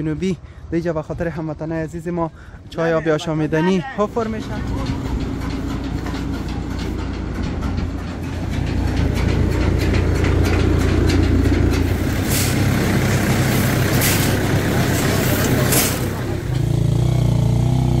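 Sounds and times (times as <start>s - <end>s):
engine humming: 4.0s - 18.0s.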